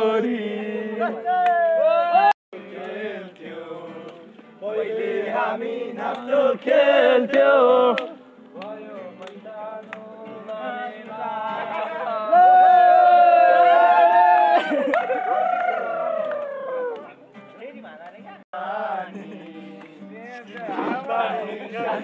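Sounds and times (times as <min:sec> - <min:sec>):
male chorus singing and chanting: 0:00.0 - 0:13.7, 0:18.6 - 0:22.0.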